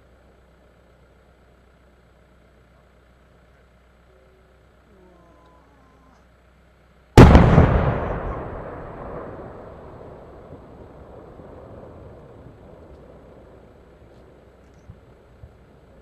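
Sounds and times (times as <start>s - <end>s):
long echo of bang: 7.2s - 12.8s.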